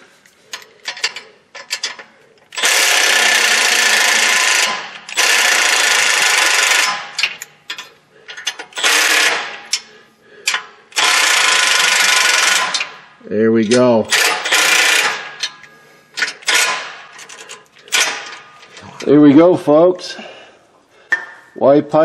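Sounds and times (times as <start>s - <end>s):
impact ratchet running: 0.6s - 13.0s, 14.1s - 18.6s.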